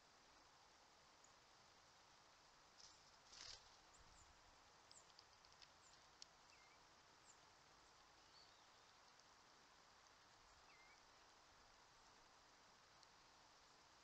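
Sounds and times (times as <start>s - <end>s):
faint hiss: 0.0s - 14.0s
soft rustle: 2.7s - 6.6s.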